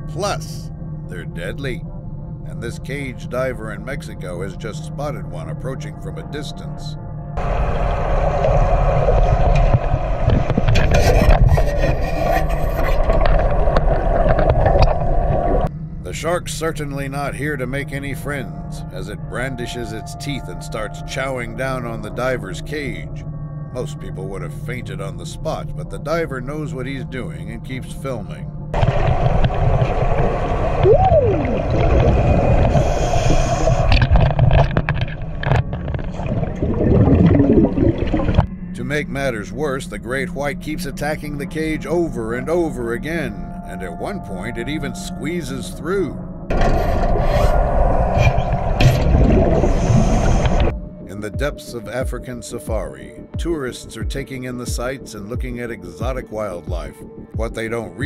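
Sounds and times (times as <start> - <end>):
rising and falling whine: 7.4 - 11.9, 28.8 - 34.1
churning water underwater: 7.4 - 15.7, 28.7 - 38.6, 46.2 - 50.8
scuba bubbles: 7.4 - 15.7, 28.8 - 38.5, 46.5 - 50.7.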